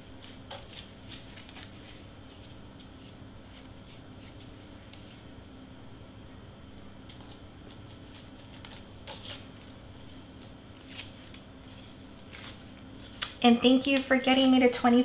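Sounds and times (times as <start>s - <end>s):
cardstock rustling and scraping: 7.1s - 14.7s.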